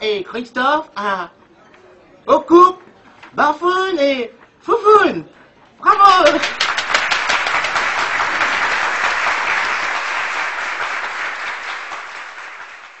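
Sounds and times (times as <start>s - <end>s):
applause: 6.2s - 13.0s.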